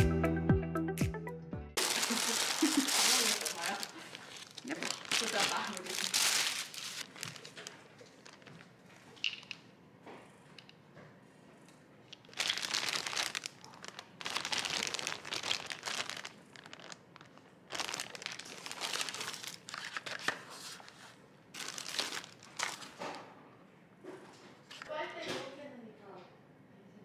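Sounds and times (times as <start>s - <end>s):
plastic bag crinkling: 1.8s - 9.6s, 12.1s - 23.2s.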